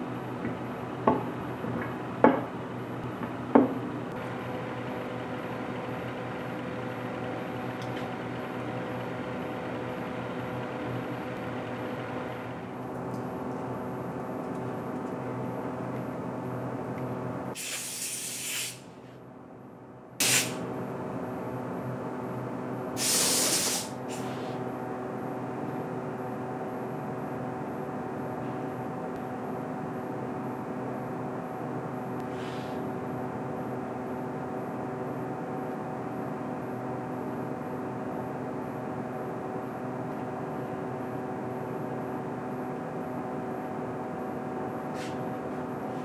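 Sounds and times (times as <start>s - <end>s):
workshop hum: 0.0s - 46.0s
air blow gun hissing: 17.6s - 18.8s, 20.2s - 20.6s, 23.0s - 24.5s.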